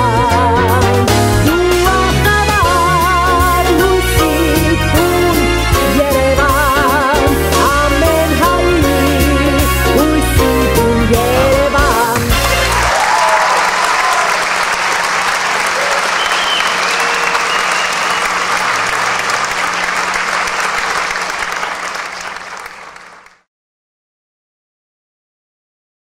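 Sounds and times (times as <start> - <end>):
audience applauding: 12.4 - 23.5.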